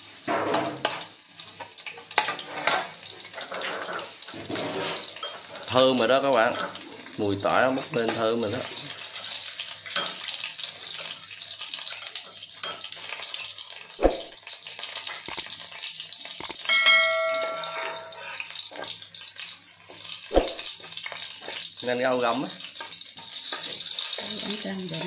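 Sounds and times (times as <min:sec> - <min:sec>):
garlic sizzling in oil: 0:00.0 - 0:25.0
bell-like ding: 0:16.6 - 0:18.2.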